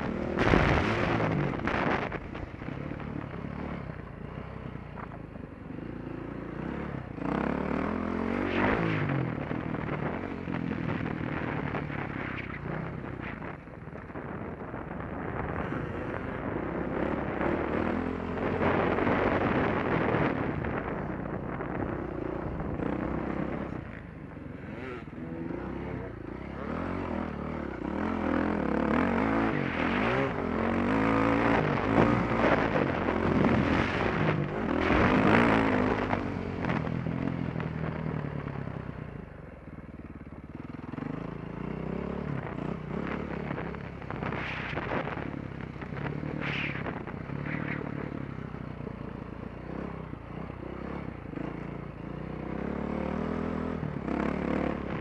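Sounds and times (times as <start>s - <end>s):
dirt bike engine revving: 24.5s - 37.4s.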